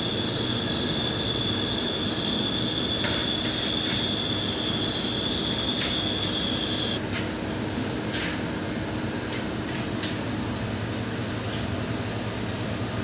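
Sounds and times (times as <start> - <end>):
high steady whine: 0.0 - 7.1
fan-like hum and hiss: 0.0 - 13.0.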